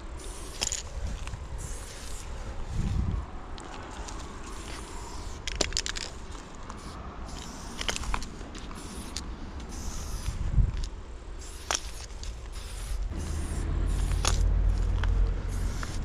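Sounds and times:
spray-paint can hissing: 0.2 - 0.8, 1.6 - 2.3, 4.5 - 5.5, 6.8 - 10.4, 11.4 - 16.0
low rumble: 13.1 - 16.0.

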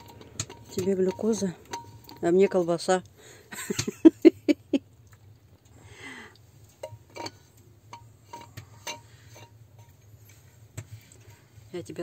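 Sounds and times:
dishes and cutlery clinking: 0.0 - 2.7, 6.8 - 11.4.

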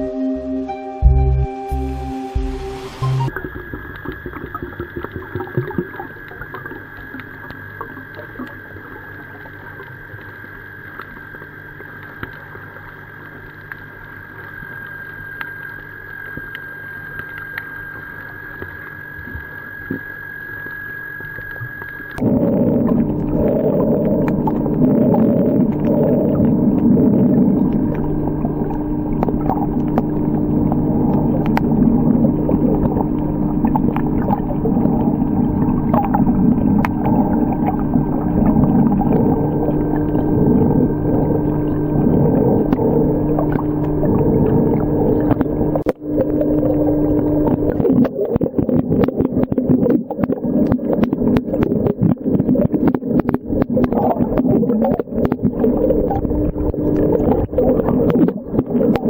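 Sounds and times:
low underwater hum: 0.0 - 59.0
water gurgling: 1.8 - 59.0
dense crackling: 22.2 - 59.0.

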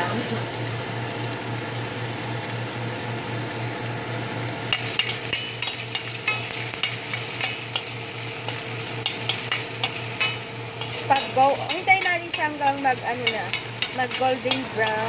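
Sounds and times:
vegetables sizzling in oil: 0.0 - 15.0
metal spoon scraping pan: 4.8 - 7.9, 8.5 - 15.0.

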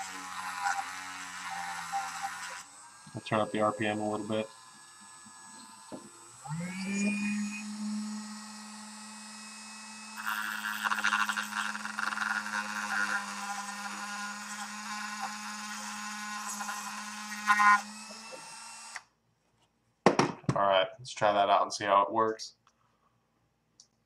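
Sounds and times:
cutoff wheel grinding metal: 0.0 - 19.0
rotary tool high-speed whine: 0.0 - 19.1.

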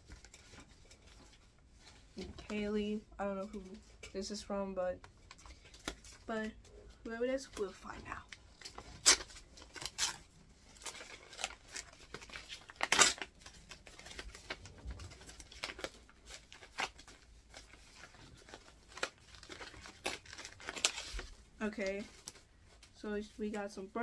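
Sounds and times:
paper crinkling and rustling: 0.0 - 4.4, 5.0 - 24.0
envelope paper tearing: 8.6 - 21.3.

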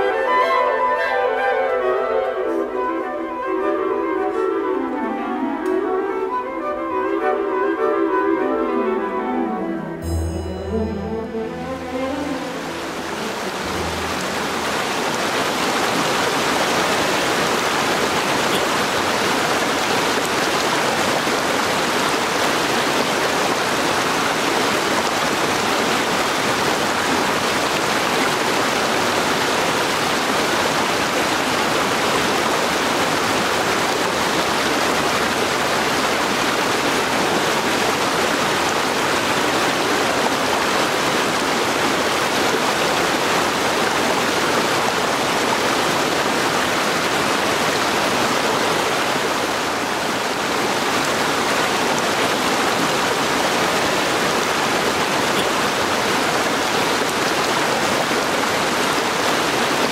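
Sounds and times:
creek flowing over rocks: 8.0 - 59.9.

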